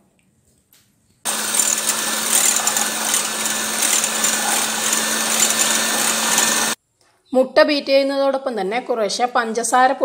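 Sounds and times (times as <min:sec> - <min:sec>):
beaters whisking eggs in a bowl: 0:01.3 - 0:06.8
electric hand mixer humming: 0:01.3 - 0:06.8.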